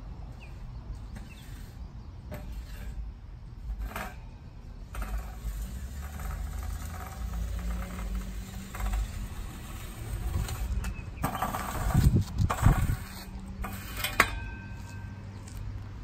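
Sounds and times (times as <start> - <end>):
rake scratching through grass: 5.0 - 14.2.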